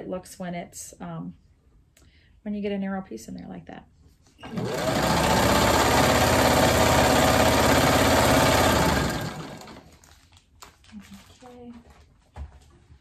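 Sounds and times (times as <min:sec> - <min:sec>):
sewing machine running: 0:04.4 - 0:10.0.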